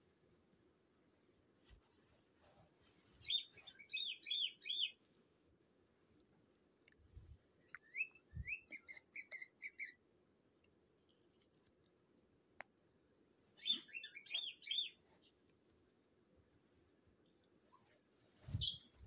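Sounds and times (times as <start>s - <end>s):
cockatiel chirping: 3.2s - 5.0s, 7.8s - 10.0s, 13.6s - 15.0s, 18.6s - 19.0s.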